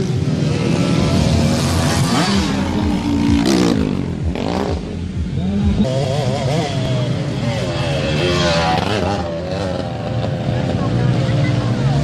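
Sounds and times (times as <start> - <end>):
motocross bikes revving past: 0.0 - 12.0.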